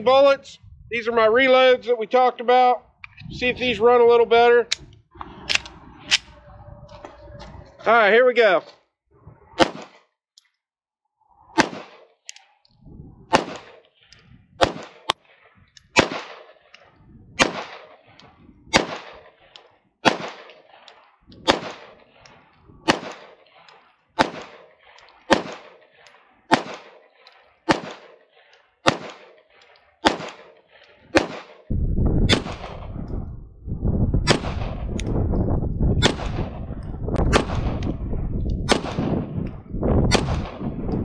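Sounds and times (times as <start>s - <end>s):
pistol shots with ringing echo: 9.6s - 10.0s, 11.5s - 12.2s, 13.3s - 16.8s, 17.4s - 32.9s, 34.2s - 35.0s, 36.0s - 36.6s, 37.3s - 37.9s, 38.6s - 39.4s, 40.1s - 41.0s.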